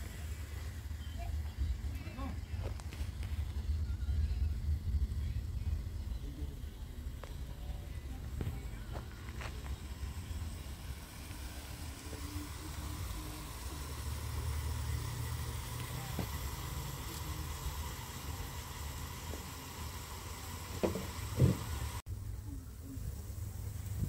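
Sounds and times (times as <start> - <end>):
low rumble: 0.0 - 15.7
onions sizzling in a pan: 9.8 - 22.0.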